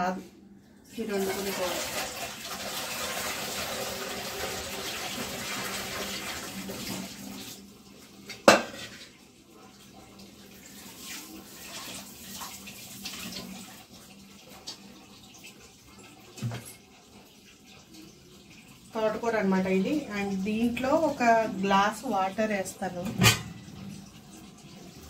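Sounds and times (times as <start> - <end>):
tap water running: 0.0 - 25.0
dishes knocking: 8.4 - 9.0, 23.1 - 23.7
steel vessel clanking: 23.0 - 23.8.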